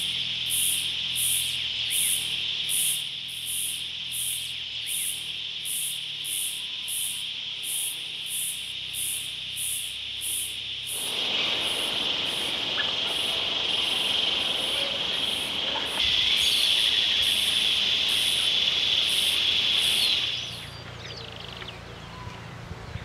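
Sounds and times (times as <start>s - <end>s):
insect buzz: 0.0s - 21.7s
pulsing insect chirp: 0.0s - 21.8s
faint bird calls: 10.9s - 22.6s.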